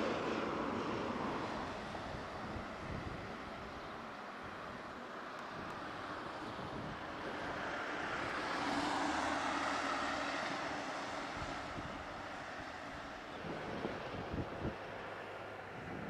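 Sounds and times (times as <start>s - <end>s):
vehicle passing: 6.7s - 16.0s.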